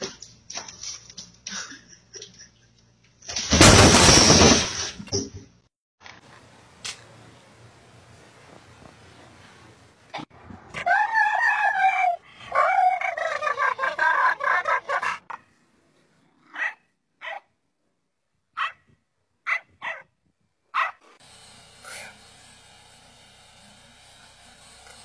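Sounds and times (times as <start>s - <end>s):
dog barking: 16.5s - 17.5s, 18.6s - 18.8s, 19.4s - 20.1s, 20.7s - 21.0s.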